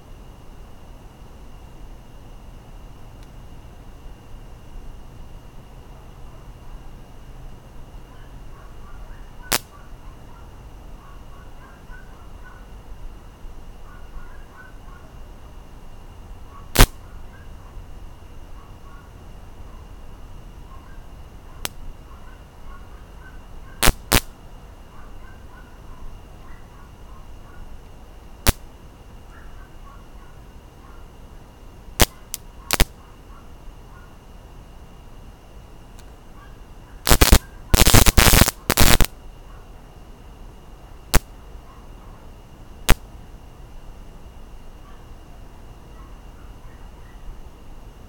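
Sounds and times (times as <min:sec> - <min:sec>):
bug zapper cracking: 0:09.5 - 0:09.8, 0:16.7 - 0:17.0, 0:23.8 - 0:24.3, 0:28.4 - 0:28.7, 0:32.0 - 0:33.0, 0:37.0 - 0:39.2, 0:41.1 - 0:41.3, 0:42.8 - 0:43.1.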